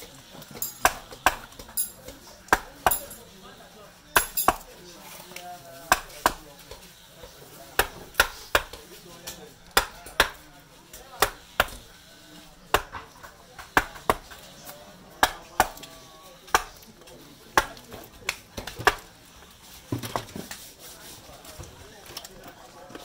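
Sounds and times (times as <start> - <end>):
wooden mallet striking gouge: 5.9 - 6.4, 9.7 - 10.4, 12.7 - 14.4.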